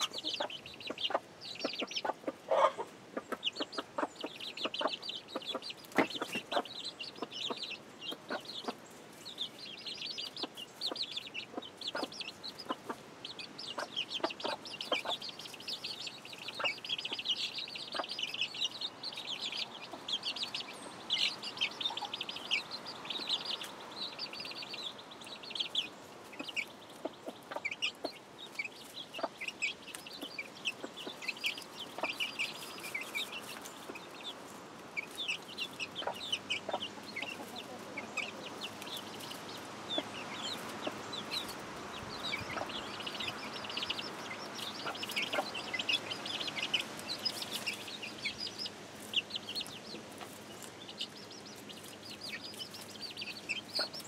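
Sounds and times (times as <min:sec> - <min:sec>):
chicks peeping: 0:00.0 - 0:54.0
hen clucking: 0:00.0 - 0:54.0.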